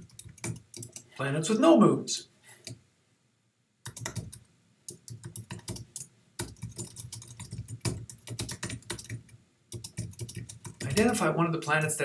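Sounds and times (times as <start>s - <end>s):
typing on computer keyboard: 0.0s - 1.1s, 3.8s - 11.2s.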